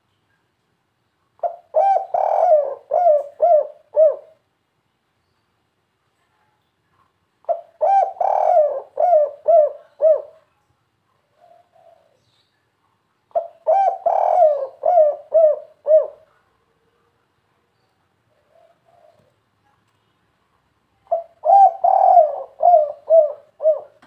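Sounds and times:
dove cooing: 1.4s - 4.4s, 7.4s - 10.5s, 11.3s - 12.2s, 13.3s - 16.4s, 18.3s - 19.4s, 21.1s - 24.0s.

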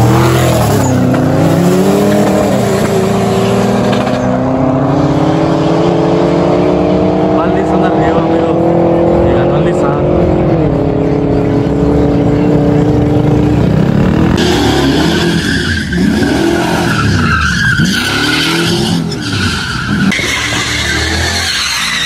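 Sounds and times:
car engine revving: 0.0s - 22.0s
tyres squealing: 14.5s - 22.0s.

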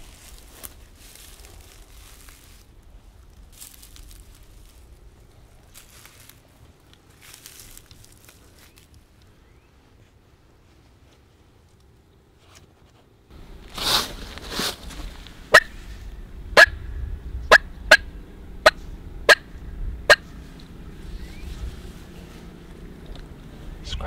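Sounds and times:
turkey clucks: 17.5s - 19.5s, 20.1s - 20.3s.

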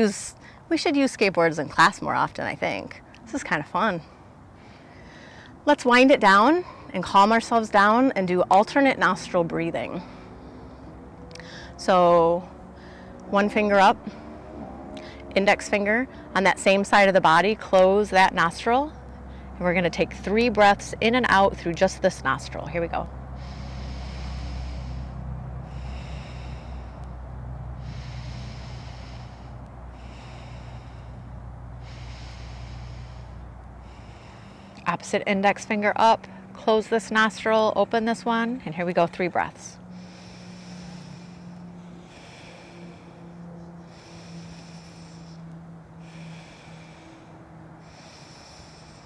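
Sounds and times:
steady low hum: 0.0s - 49.0s
breathing through nostril: 4.5s - 5.6s, 10.0s - 11.8s, 14.0s - 15.3s, 23.3s - 34.8s, 39.8s - 49.0s.

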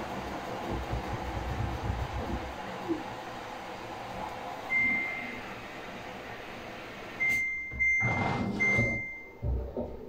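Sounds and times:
high beeps: 4.7s - 5.4s, 7.2s - 9.3s.

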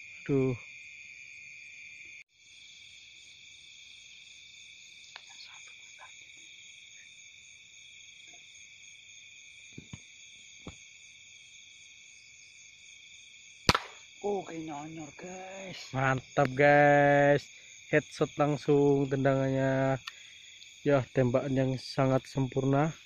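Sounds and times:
insects and frogs chorus: 0.0s - 23.0s
faint ticks: 5.1s - 6.5s, 20.0s - 20.8s
gunshot: 13.7s - 14.0s.

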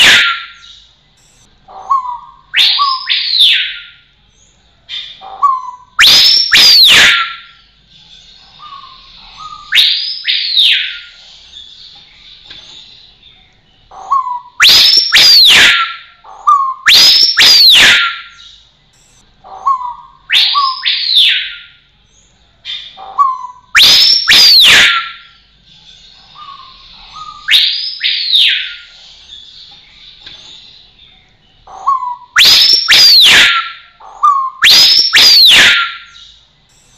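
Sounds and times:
bird ringing whistle call: 14.2s - 19.1s, 23.2s - 25.3s, 31.9s - 36.3s.

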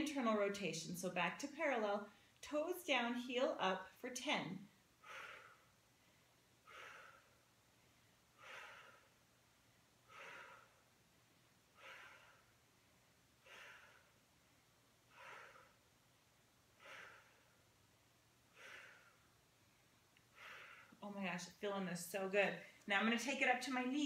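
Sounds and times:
woman breathing: 2.1s - 2.4s, 4.8s - 17.8s, 18.4s - 21.0s.

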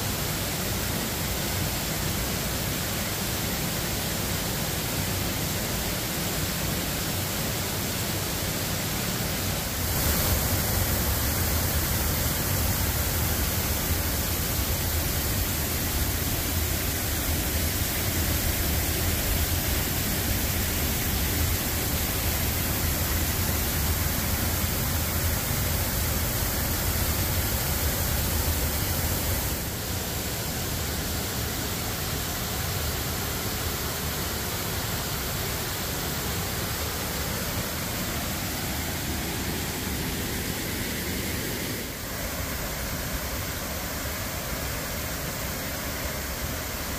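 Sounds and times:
water pouring over waterfall: 9.5s - 38.8s.

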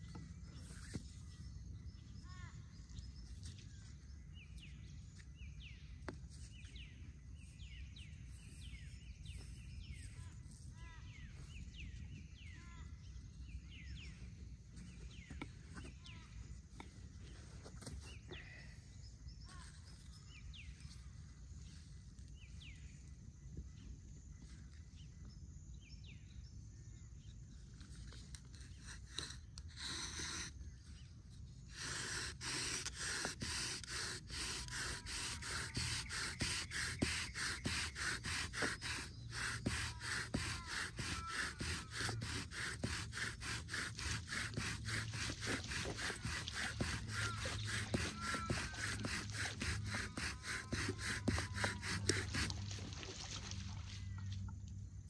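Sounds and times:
wooden spindle grinding: 28.4s - 30.6s, 31.5s - 52.8s.

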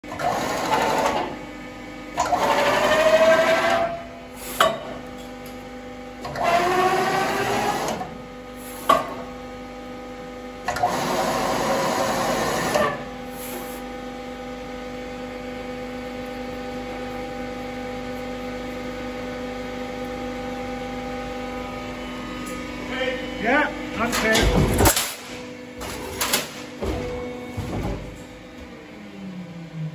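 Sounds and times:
motor hum: 0.0s - 29.9s
loud mechanical grinding: 0.1s - 1.4s, 2.2s - 4.1s, 6.2s - 8.1s, 10.7s - 13.0s
sharp machine clunks: 24.0s - 28.1s.

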